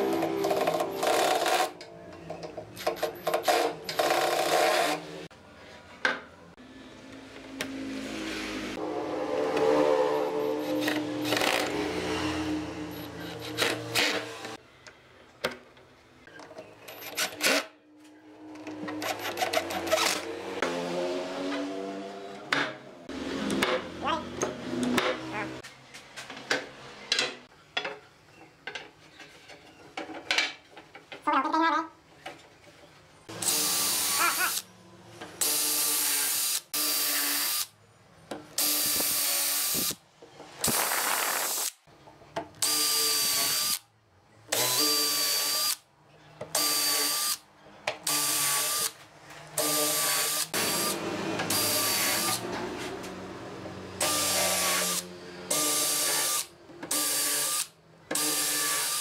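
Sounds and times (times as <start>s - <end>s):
cordless drill drilling wood: 33.3s - 34.7s, 35.4s - 37.7s, 38.6s - 40.0s, 42.6s - 43.8s, 44.5s - 45.8s, 46.6s - 47.4s, 48.1s - 49.0s, 49.6s - 52.4s, 54.0s - 59.0s.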